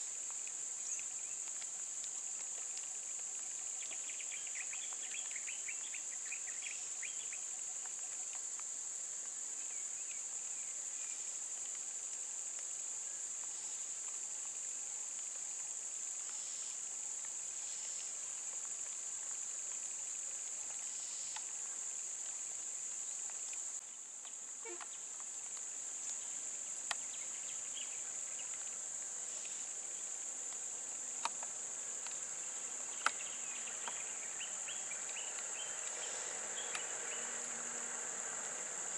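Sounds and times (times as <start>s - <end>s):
faint chirps: 23.0s - 25.2s.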